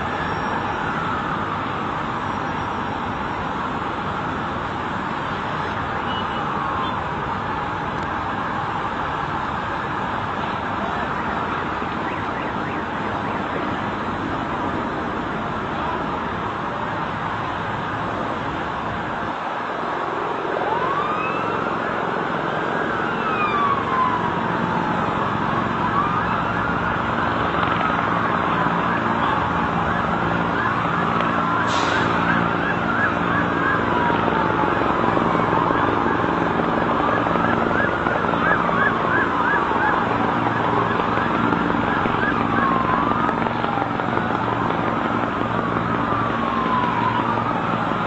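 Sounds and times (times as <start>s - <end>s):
siren fast yelp: 0.0s - 1.5s, 27.9s - 44.4s
engine and traffic noise: 0.0s - 48.0s
sirens wailing: 0.0s - 48.0s.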